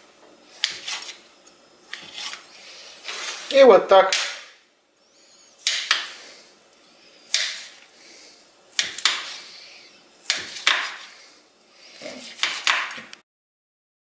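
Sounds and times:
knife chopping on glass board: 0:07.3 - 0:07.7, 0:08.8 - 0:09.3, 0:10.3 - 0:11.0, 0:12.2 - 0:13.0.

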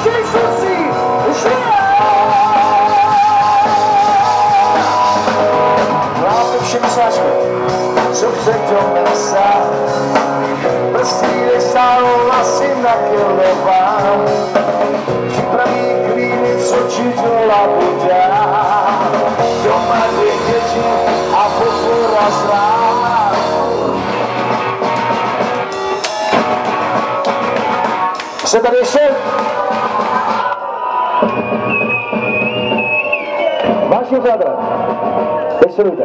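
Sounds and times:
electric guitars sustaining chords: 0:00.0 - 0:28.6
keyboard sustaining chords: 0:00.0 - 0:30.0
rock band playing live: 0:00.0 - 0:36.0
wavering melody line: 0:17.7 - 0:27.1.

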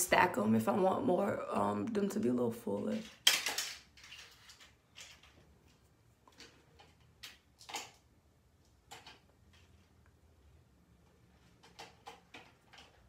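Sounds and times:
small objects clicking and tapping: 0:03.0 - 0:10.0, 0:11.4 - 0:13.0.

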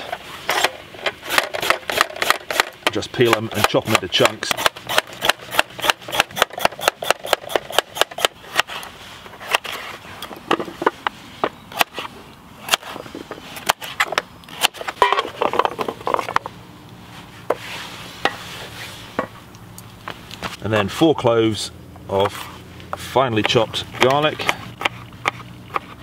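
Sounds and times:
knife scraping board: 0:17.4 - 0:19.4.

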